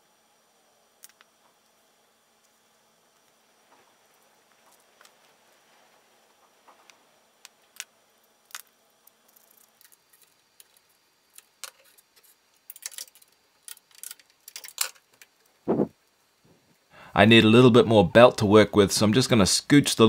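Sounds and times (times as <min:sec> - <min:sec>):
plastic parts clicking and tapping: 0:09.4 - 0:15.4.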